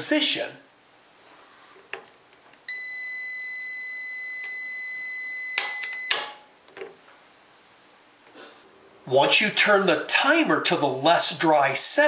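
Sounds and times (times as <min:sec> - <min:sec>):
multimeter continuity beep: 0:02.7 - 0:06.4.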